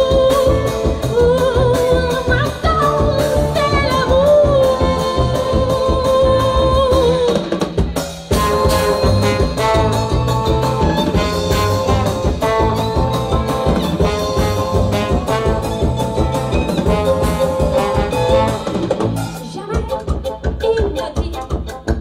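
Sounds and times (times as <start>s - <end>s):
drum kit rhythm: 0.0s - 22.0s
trombone lead line: 8.3s - 20.4s
sousaphone bass: 8.3s - 21.0s.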